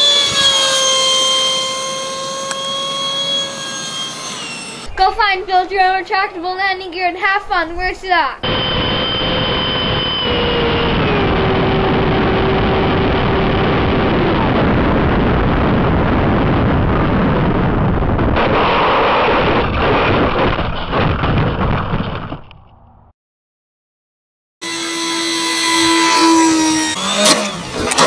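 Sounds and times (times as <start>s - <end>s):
electric fan motor whining: 0.0s - 5.0s, 8.4s - 17.0s, 24.6s - 28.0s
wind rush: 7.7s - 22.5s.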